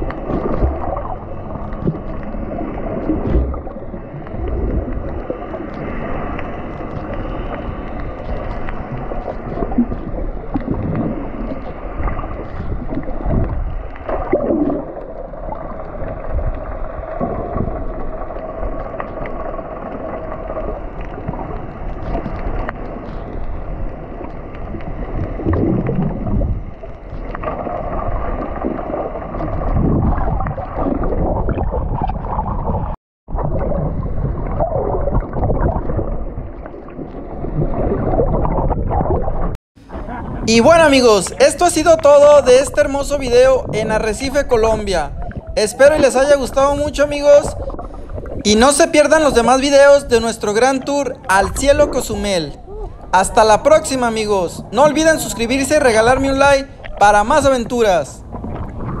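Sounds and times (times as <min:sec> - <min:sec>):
muffled underwater moving water: 0:00.0 - 0:59.0
water gurgles: 0:00.0 - 0:59.0.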